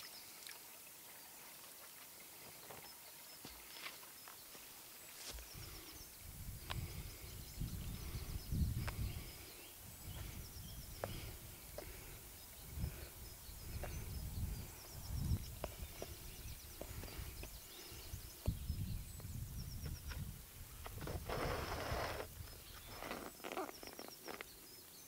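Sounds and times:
small birds chirping: 0:01.7 - 0:25.0
wind rumble on microphone: 0:05.5 - 0:23.1.

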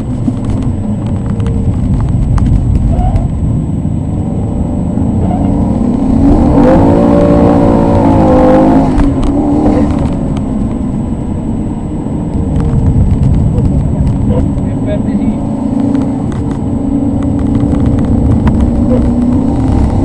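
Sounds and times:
car engine accelerating: 0:00.0 - 0:20.0
road and cabin noise: 0:00.0 - 0:20.0.

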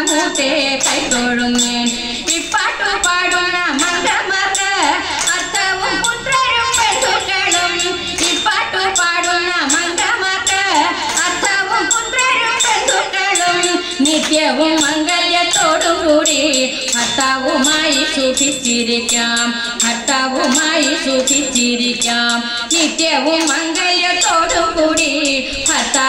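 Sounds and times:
hand claps keeping a beat: 0:00.0 - 0:24.5, 0:25.6 - 0:26.0
women singing through a sound system: 0:00.0 - 0:26.0.

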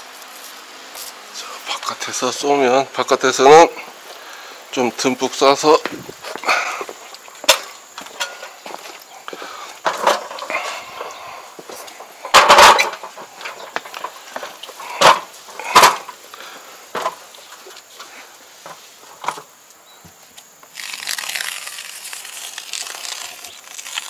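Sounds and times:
steady hiss: 0:00.0 - 0:24.0
sharp knocks and clatters: 0:12.3 - 0:16.1.

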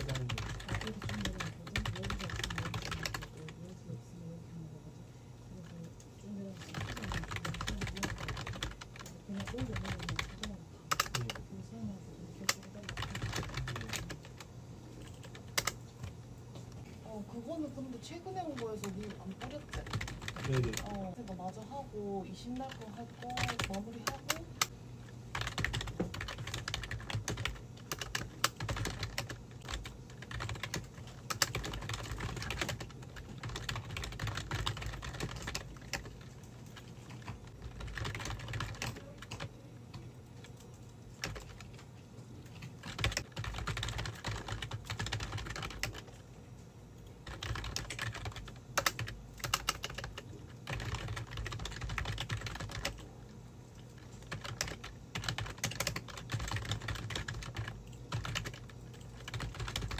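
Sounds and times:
keyboard typing clicks: 0:00.0 - 0:03.5, 0:25.4 - 0:41.9, 0:42.5 - 0:46.2, 0:47.0 - 0:53.0, 0:54.0 - 0:59.9
low steady hum: 0:00.0 - 0:59.9.

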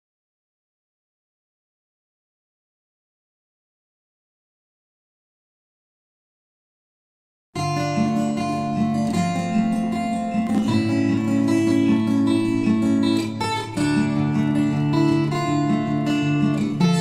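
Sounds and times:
acoustic guitar strumming chords: 0:07.6 - 0:17.0.

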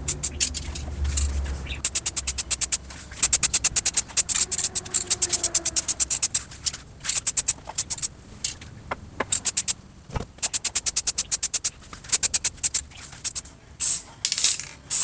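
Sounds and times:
aerosol can spraying: 0:01.8 - 0:06.4, 0:10.4 - 0:14.0.

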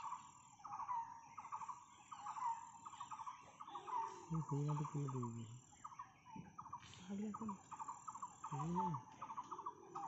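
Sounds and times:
low voice: 0:04.3 - 0:05.6, 0:08.5 - 0:09.0.

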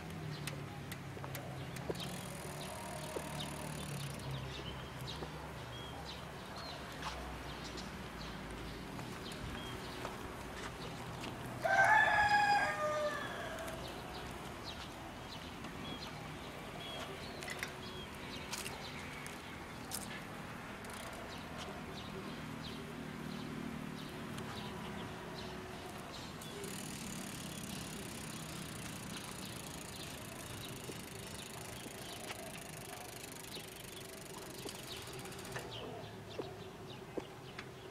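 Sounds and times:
rooster crowing: 0:11.6 - 0:13.8.

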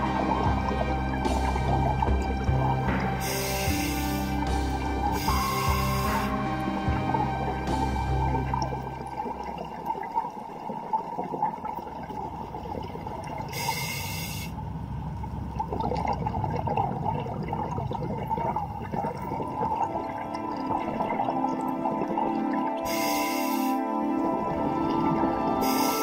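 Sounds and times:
underwater exhale bubbling: 0:00.0 - 0:14.5, 0:15.6 - 0:26.0
regulator inhale hiss: 0:03.2 - 0:04.5, 0:05.2 - 0:06.3, 0:13.6 - 0:14.6, 0:22.9 - 0:23.9, 0:25.6 - 0:26.0.

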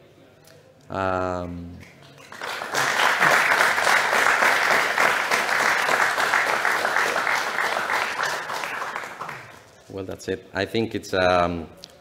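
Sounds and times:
audience applauding: 0:01.8 - 0:09.7.

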